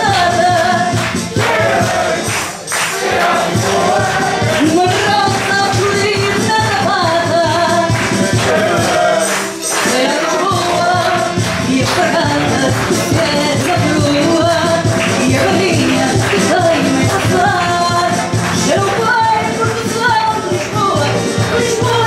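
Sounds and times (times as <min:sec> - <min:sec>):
woman singing into a microphone: 0:00.0 - 0:01.0, 0:04.5 - 0:08.1, 0:09.8 - 0:22.0
musical accompaniment with steady beat: 0:00.0 - 0:22.0.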